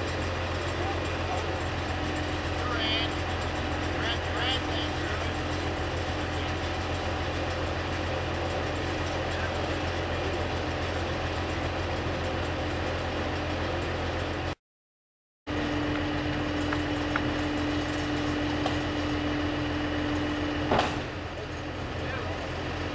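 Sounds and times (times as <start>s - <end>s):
diesel engine idling: 0.0s - 14.6s, 15.5s - 22.9s
sharp knock: 20.7s - 21.1s.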